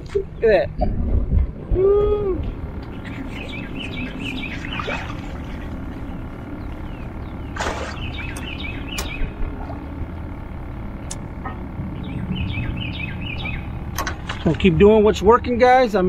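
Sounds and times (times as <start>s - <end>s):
songbird chirping: 2.8s - 9.8s, 10.7s - 14.5s.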